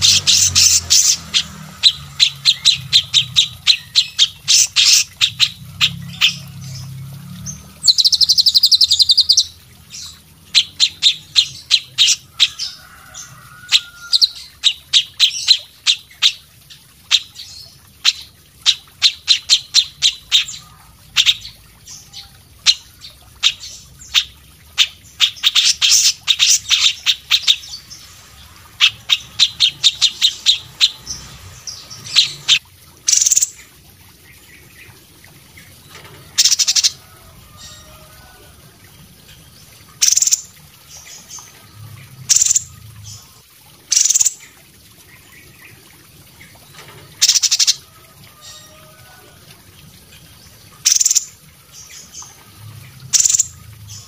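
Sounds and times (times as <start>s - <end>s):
songbirds chirping and trilling: 0.0s - 54.0s.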